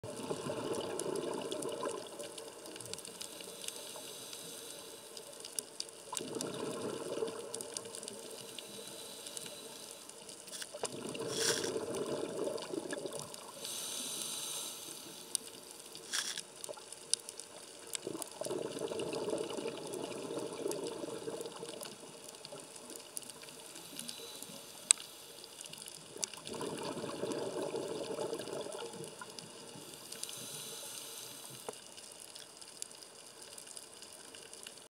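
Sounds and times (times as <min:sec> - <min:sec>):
scuba regulator air bubbling: 0:06.2 - 0:10.0, 0:10.8 - 0:15.4, 0:26.4 - 0:31.7.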